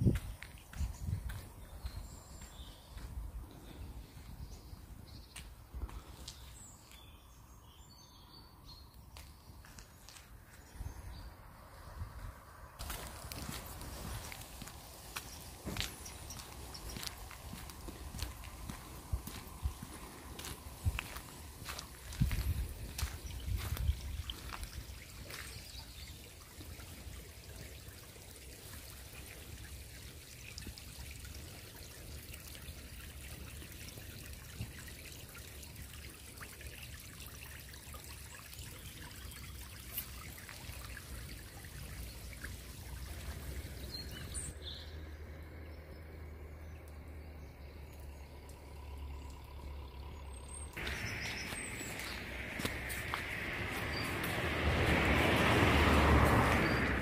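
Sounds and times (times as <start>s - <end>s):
water trickling through grass: 0.0s - 57.0s
light drizzle hissing: 12.7s - 44.5s, 50.7s - 57.0s.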